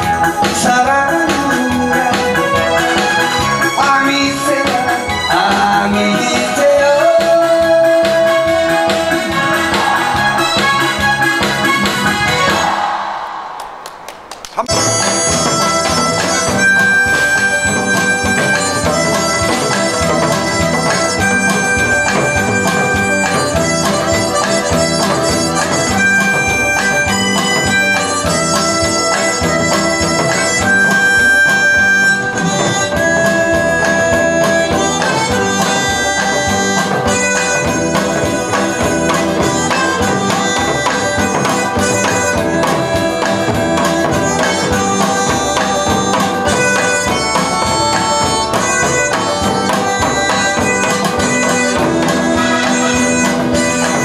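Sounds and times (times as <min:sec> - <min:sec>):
amplified harmonica melody: 0:00.0 - 0:12.7, 0:14.6 - 0:54.0
backing music with steady beat: 0:00.0 - 0:13.8, 0:14.6 - 0:54.0.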